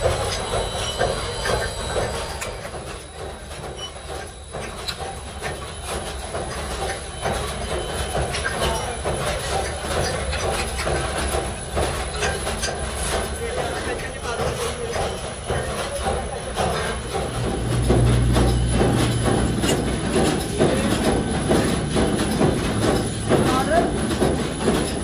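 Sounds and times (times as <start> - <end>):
sand mixer motor rumble: 0.0 - 3.4
metallic scraping and clatter: 0.0 - 25.0.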